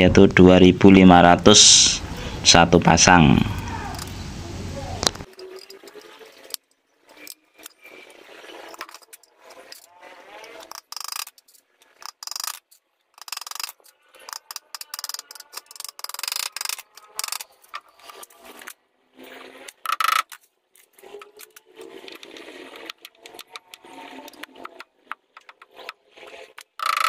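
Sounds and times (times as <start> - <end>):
metal clicking and scraping on wood: 5.2 - 27.0.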